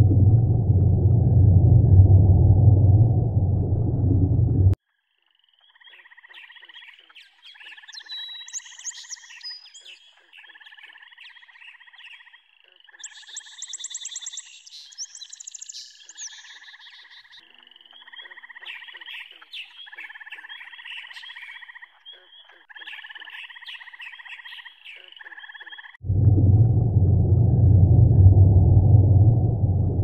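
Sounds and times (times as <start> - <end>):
frogs trilling: 4.9 - 26.0.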